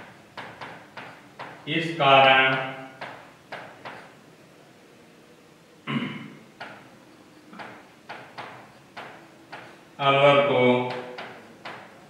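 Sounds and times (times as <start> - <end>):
marker writing on a whiteboard: 0.0 - 4.2, 6.6 - 12.0.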